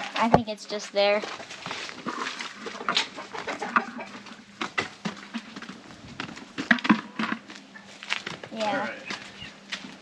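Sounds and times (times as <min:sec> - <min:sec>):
chickens clucking: 0:00.9 - 0:05.8.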